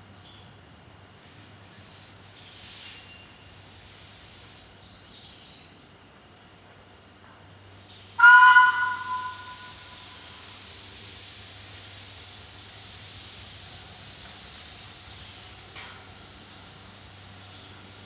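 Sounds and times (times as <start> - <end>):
steam hissing: 8.0 - 18.0
steam locomotive whistle: 8.2 - 10.6.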